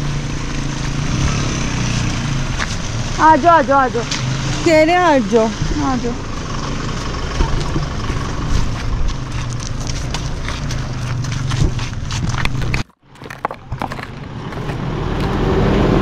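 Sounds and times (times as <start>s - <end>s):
vehicle engine running slowly: 0.0s - 16.0s
tyres crunching over stones: 0.4s - 16.0s.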